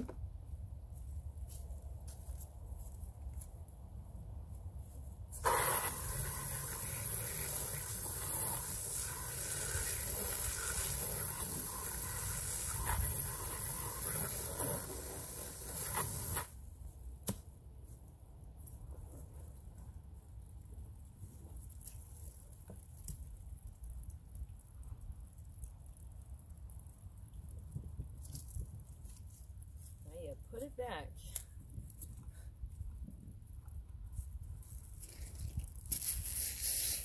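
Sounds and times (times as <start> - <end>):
hose nozzle spraying water: 5.4 - 16.6.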